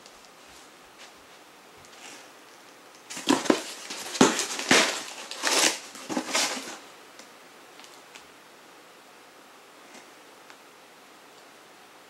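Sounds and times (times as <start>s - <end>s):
cardboard box crushed and torn: 3.1s - 6.8s.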